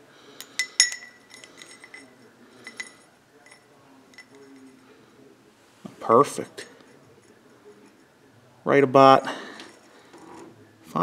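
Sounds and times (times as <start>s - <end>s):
light metal clicks and clinks: 0.3s - 4.8s.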